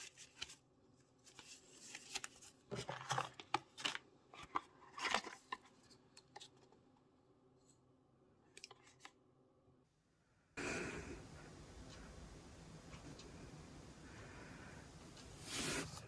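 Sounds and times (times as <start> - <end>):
paper packaging rustling: 0.0 - 6.7
background hiss: 10.6 - 16.0.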